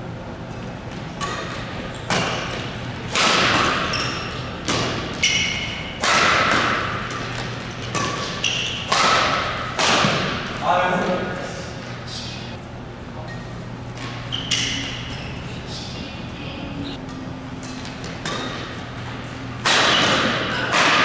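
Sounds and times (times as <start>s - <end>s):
rackets striking shuttlecock: 1.0s - 10.6s, 17.0s - 18.9s, 19.6s - 21.0s.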